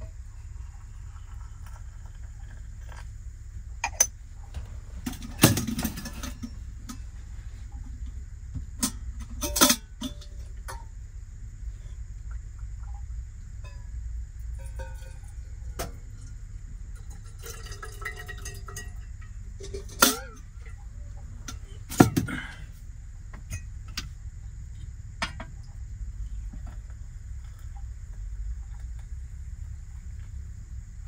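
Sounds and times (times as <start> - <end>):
steady low hum: 0.0 - 31.0
teacups clinking: 14.6 - 20.8
tea pouring: 17.0 - 20.4.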